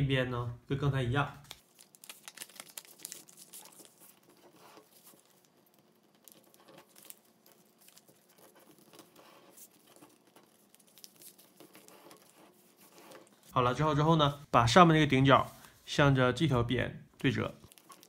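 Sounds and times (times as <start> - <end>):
paper rustling and crinkling: 1.4 - 13.6, 17.6 - 18.0.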